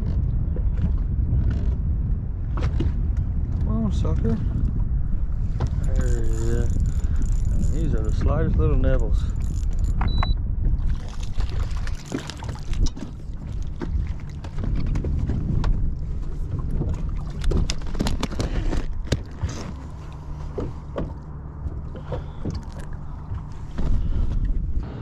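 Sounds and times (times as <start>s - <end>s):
wind rumbling on microphone: 0.0s - 25.0s
fishing tackle clicks and knocks: 5.6s - 10.4s, 11.2s - 15.8s, 16.8s - 24.0s.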